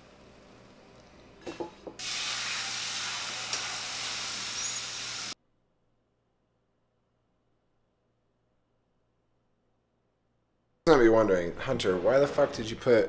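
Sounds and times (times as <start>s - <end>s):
egg sizzling in a skillet: 0.1s - 5.4s.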